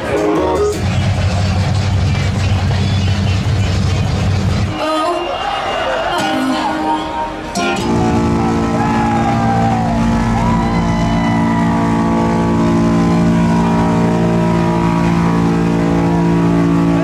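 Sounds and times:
diesel truck engine at high revs: 0.3 - 4.7, 7.8 - 17.0.

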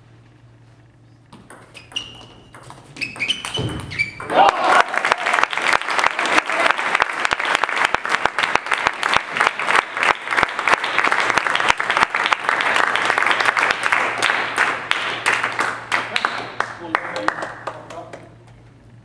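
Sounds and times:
crowd applauding: 4.3 - 18.2.

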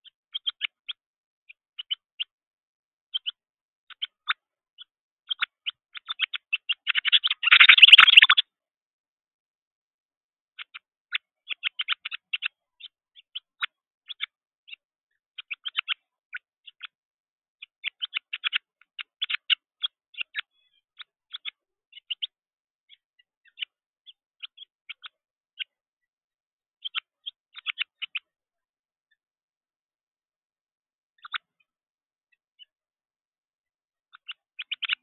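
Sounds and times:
young bird begging chirps: 3.1 - 8.4, 26.8 - 28.2, 34.1 - 35.0.

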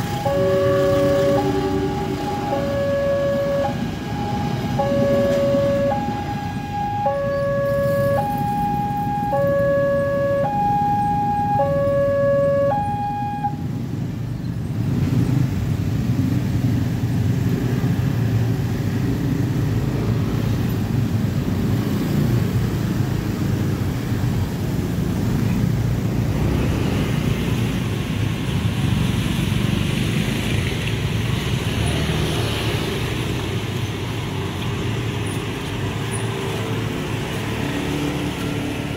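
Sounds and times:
two-tone crossing alarm: 0.0 - 13.8
motorcycle engines rumbling: 0.0 - 38.9.

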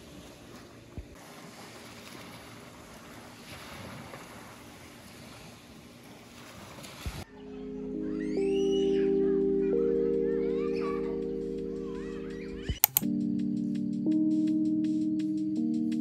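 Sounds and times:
small waves washing onto beach: 0.0 - 7.3.

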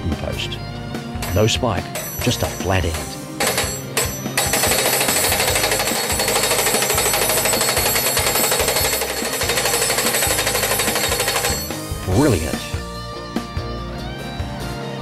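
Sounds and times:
hydraulic hammer pounding wooden post: 2.0 - 11.8.

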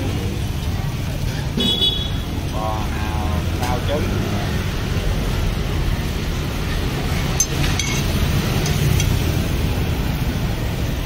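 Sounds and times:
traffic and street noise: 0.0 - 11.0
utensil clinking against pan: 7.2 - 9.3.

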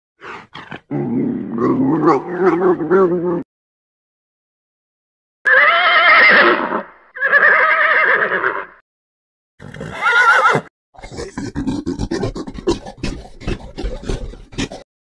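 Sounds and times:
horse whinnying: 5.5 - 8.8, 9.6 - 10.7.

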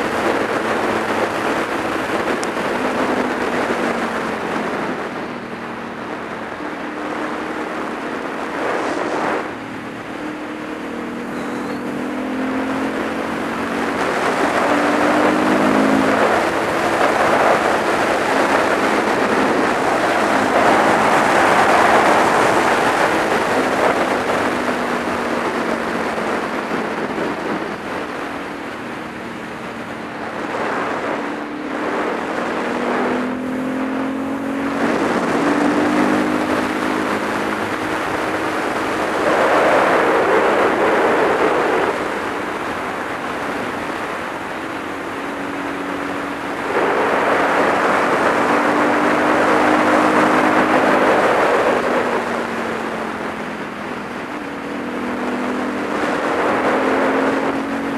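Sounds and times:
motorcycle engine running: 0.0 - 40.0
wind noise: 0.0 - 57.9.

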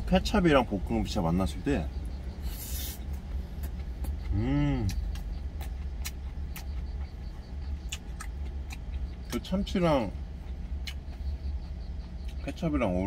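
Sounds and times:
truck engine idling: 0.0 - 13.0
man humming mmm while chewing: 3.6 - 6.2.

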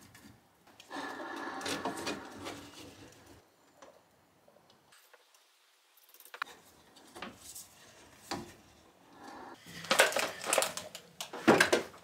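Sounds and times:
tools and plastic parts knocking: 9.8 - 12.0.

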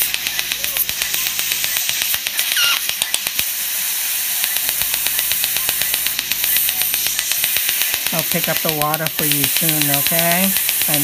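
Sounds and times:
dental laser rapid popping: 0.0 - 11.0.

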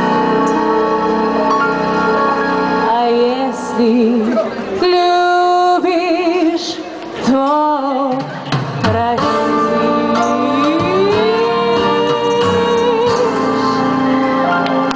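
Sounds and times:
instrumental backing: 0.0 - 5.7, 7.3 - 14.9
woman singing blues ballad: 2.8 - 14.9.

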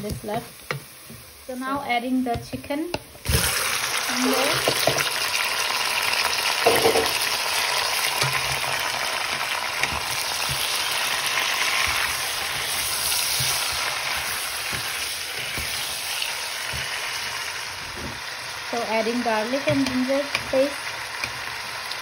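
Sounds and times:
chicken sizzling in hot oil: 0.0 - 22.0
wooden spatula knocking on pot: 6.6 - 7.3, 8.1 - 15.9, 19.5 - 20.6.

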